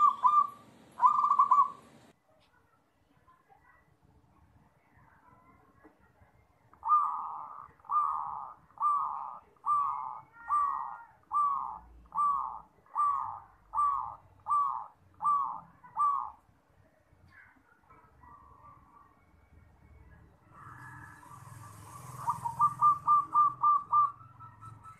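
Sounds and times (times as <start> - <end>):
dove cooing: 0.0 - 2.0, 6.8 - 16.4, 20.5 - 24.9.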